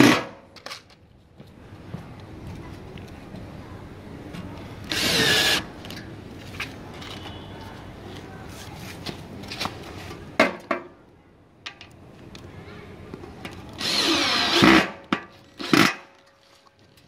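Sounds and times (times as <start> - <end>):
cordless drill driving screw: 4.9 - 5.6, 13.8 - 14.8.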